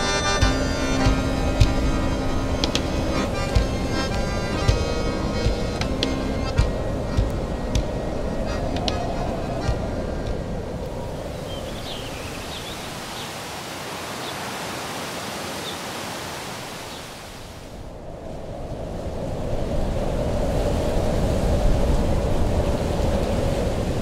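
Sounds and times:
deep rumble: 0.0 - 12.5
steady rushing noise: 0.0 - 24.0.

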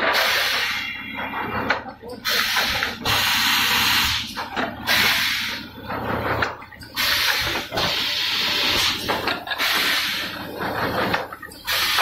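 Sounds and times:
compressed air hiss bursts: 0.0 - 0.9, 2.2 - 5.6, 7.0 - 10.4, 11.7 - 12.0.

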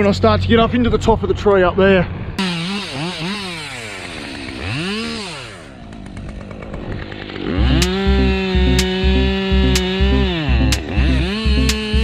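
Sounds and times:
chainsaw revving and cutting wood: 2.4 - 12.0.

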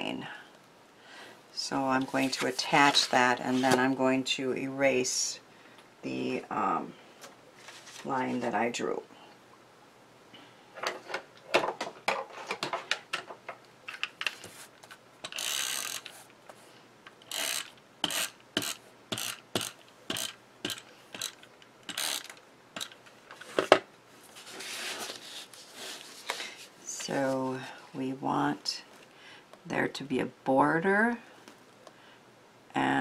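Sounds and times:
paper rustling: 7.6 - 8.1, 24.2 - 26.6
tape runner ratcheting clicks: 15.2 - 16.1, 17.2 - 23.0.

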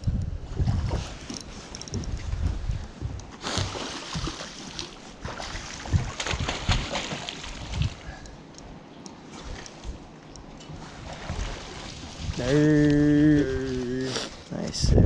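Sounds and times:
fish thrashing and splashing: 3.4 - 8.0.

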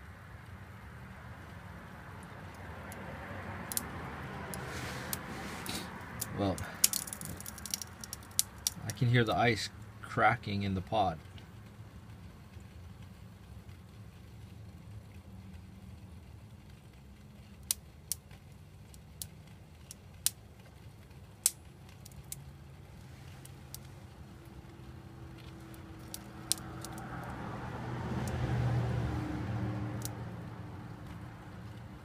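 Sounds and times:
ice cracking and popping: 4.5 - 9.0.

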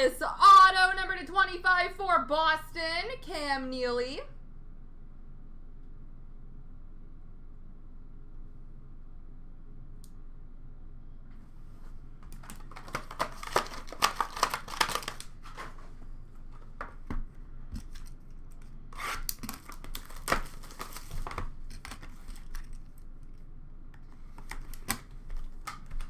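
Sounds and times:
plastic wrap crinkling: 12.2 - 16.8, 17.8 - 23.1
cardboard packaging tearing: 12.4 - 15.9, 17.8 - 22.8.

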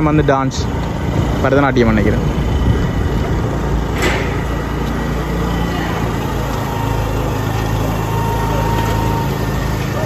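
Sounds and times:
small engine running: 0.0 - 10.0.

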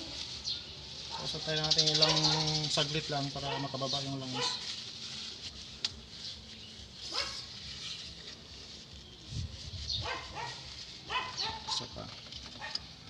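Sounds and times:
dog barking: 3.4 - 4.7, 7.1 - 7.5, 10.0 - 11.9.

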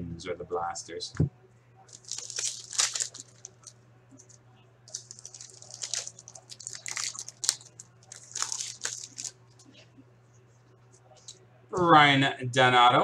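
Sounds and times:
cards rustling and snapping: 1.9 - 9.7.

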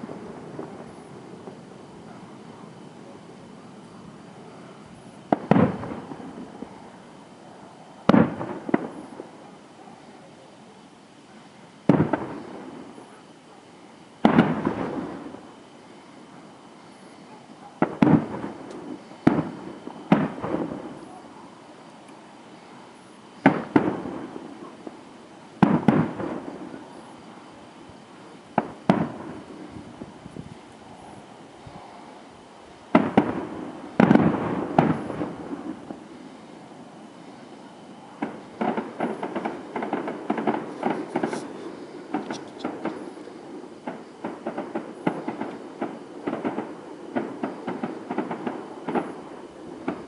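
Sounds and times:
firework shells bursting: 5.0 - 6.8, 14.2 - 15.6, 16.9 - 21.3, 23.0 - 25.0, 25.6 - 27.2, 28.5 - 30.0, 32.9 - 36.3, 38.2 - 50.0.

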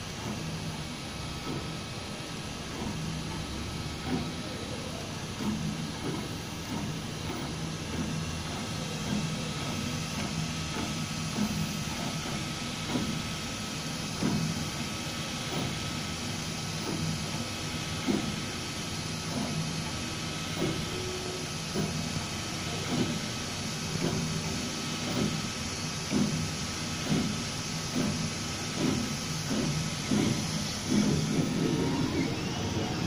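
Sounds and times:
stepper motors whining: 30.6 - 33.0.

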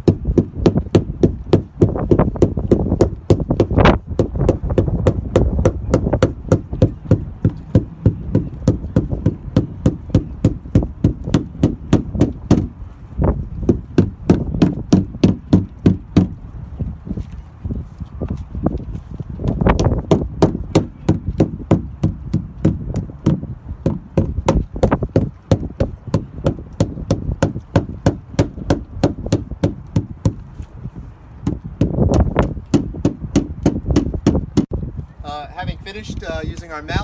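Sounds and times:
rubber mallet tapping: 0.0 - 12.7, 13.7 - 16.4
wind buffeting microphone: 0.0 - 37.0.

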